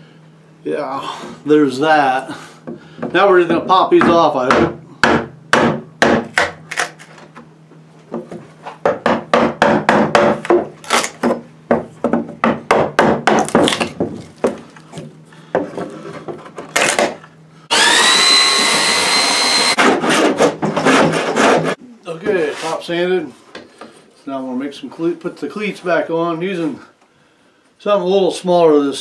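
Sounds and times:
belt sander whining: 17.7s - 19.9s.

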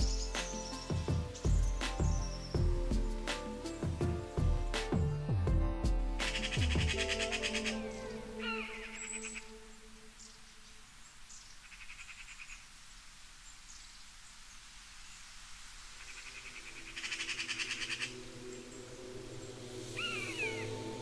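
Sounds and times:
animal trilling calls: 6.4s - 9.5s.

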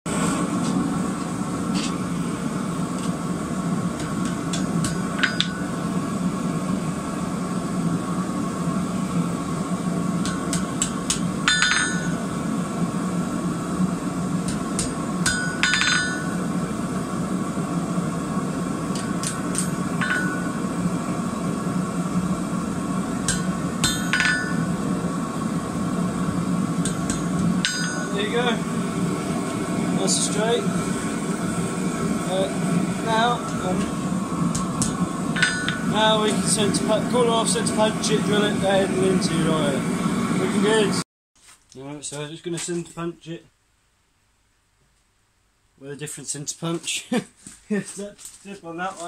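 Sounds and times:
hammer striking steel on anvil: 4.0s - 5.8s, 10.2s - 12.2s, 14.4s - 16.5s, 18.9s - 20.7s, 23.2s - 24.8s, 26.8s - 28.4s, 33.4s - 36.4s.

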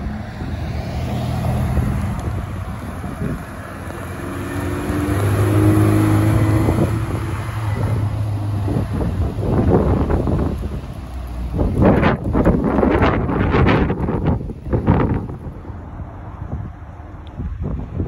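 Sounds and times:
car engine driving past: 0.0s - 12.2s
wind buffeting microphone: 0.0s - 18.0s.

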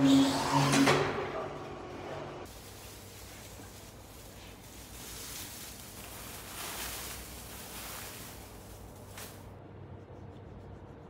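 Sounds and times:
wood shavings rustling: 2.5s - 9.5s.

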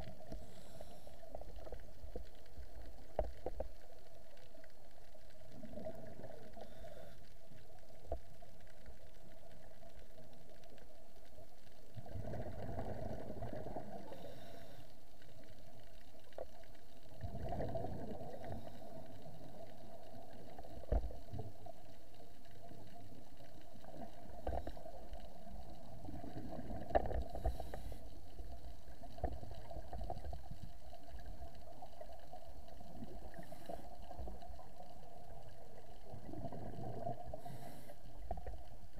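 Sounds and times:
scuba exhaust bubbles: 0.0s - 10.1s, 11.8s - 38.9s
underwater hum: 0.0s - 38.9s.

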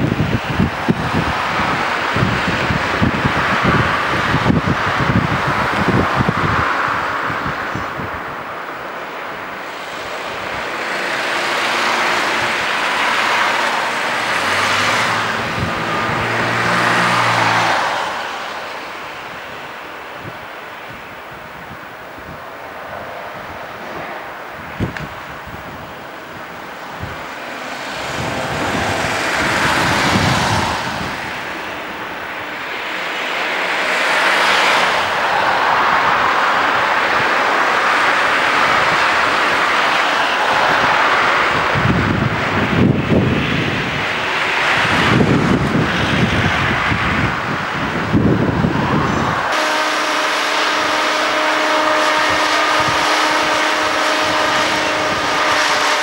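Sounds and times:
low engine hum: 0.0s - 19.8s
diesel crane engine under load: 0.0s - 22.6s, 34.9s - 56.0s
broad rushing noise: 0.0s - 56.0s
diesel engine running: 9.5s - 19.6s.

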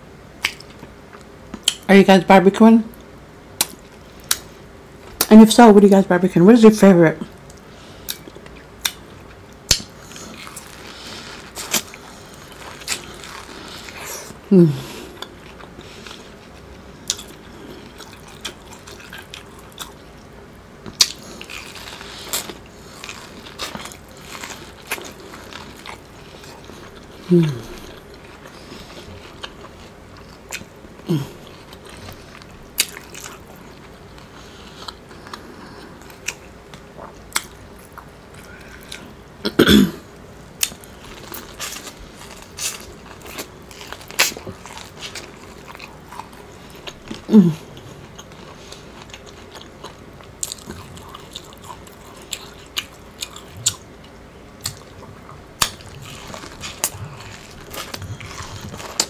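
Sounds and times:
wet mouth clicks and smacks: 9.7s - 9.9s.

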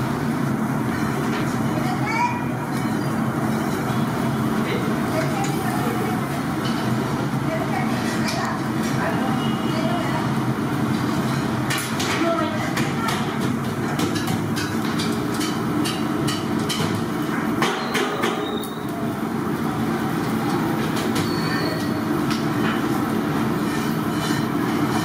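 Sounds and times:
busy kitchen roar: 0.0s - 25.0s
metal skewers clinking on grill: 2.7s - 3.9s, 23.6s - 25.0s.

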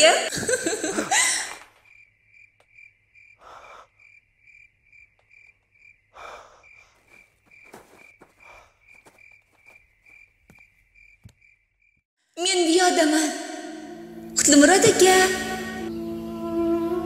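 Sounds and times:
cricket chirping: 0.4s - 12.0s.

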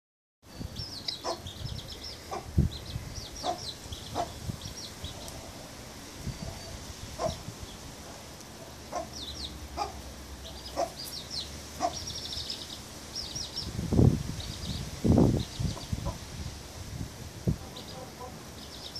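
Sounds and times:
low-pitched chick calls: 0.7s - 7.5s, 8.9s - 13.8s, 15.4s - 16.3s, 17.6s - 18.9s
baby chicks peeping: 0.8s - 5.4s, 8.9s - 13.8s, 14.4s - 16.2s, 17.6s - 18.9s.

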